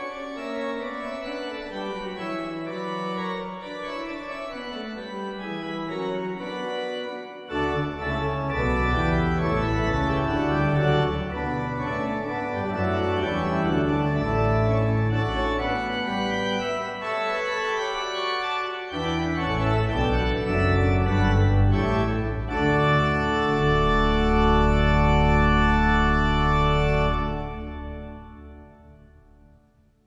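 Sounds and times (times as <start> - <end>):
organ playing sustained chords: 0.0 - 29.7.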